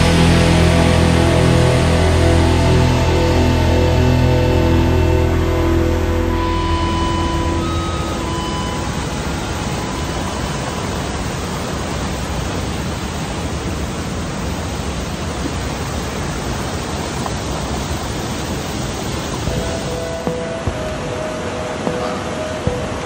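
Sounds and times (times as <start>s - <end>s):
music: 0.0s - 11.0s, 19.5s - 23.0s
whitewater rushing over rocks: 0.0s - 23.0s.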